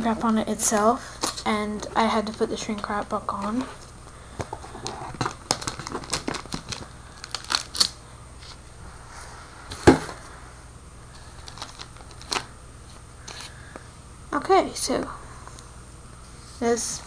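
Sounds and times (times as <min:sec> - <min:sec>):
plastic shrink wrap crinkling: 0:02.2 - 0:08.7, 0:11.1 - 0:13.5.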